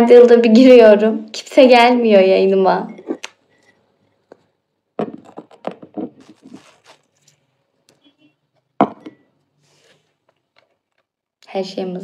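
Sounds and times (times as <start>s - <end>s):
rustling near microphone: 5.3s - 7.5s.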